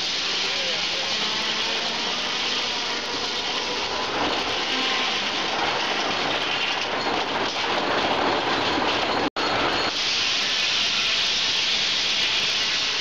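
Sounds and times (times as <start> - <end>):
circular sawmill cutting log: 0.0 - 6.0.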